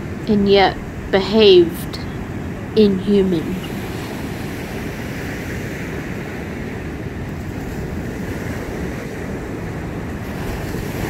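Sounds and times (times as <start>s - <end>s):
ocean surf breaking on beach: 0.0s - 11.0s
wind buffeting microphone: 0.0s - 11.0s.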